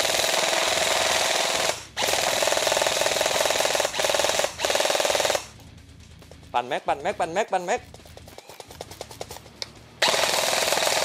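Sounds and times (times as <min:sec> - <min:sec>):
airsoft rifle firing on full auto: 0:00.0 - 0:05.6, 0:10.0 - 0:11.0.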